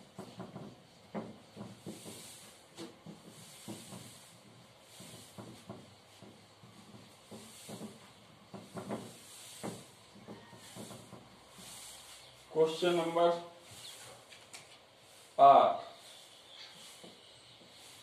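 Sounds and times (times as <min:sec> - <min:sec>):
cloth wiping whiteboard: 0:00.2 - 0:14.2, 0:15.0 - 0:18.0.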